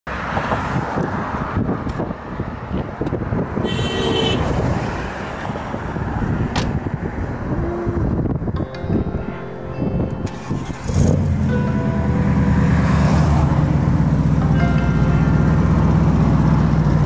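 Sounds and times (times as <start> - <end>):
car engine rumbling: 5.2 - 17.0.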